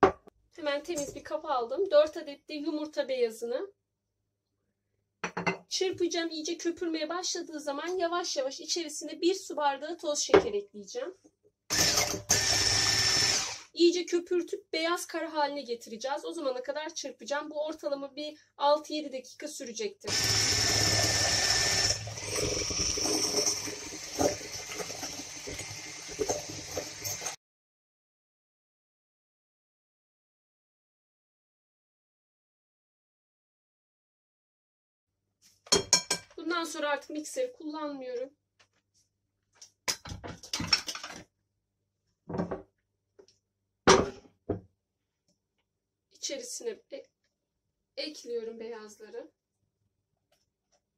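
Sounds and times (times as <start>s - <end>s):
hand mixer motor whine: 11.7s - 13.7s, 20.1s - 27.4s
utensils and bowls clattering: 22.3s - 27.4s, 35.7s - 36.4s, 40.5s - 41.2s.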